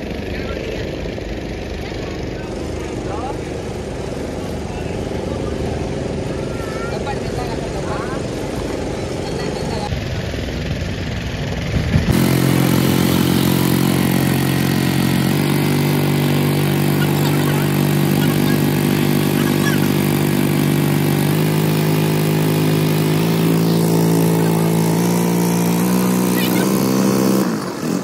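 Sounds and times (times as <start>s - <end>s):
motorboat engine drone: 0.0s - 28.0s.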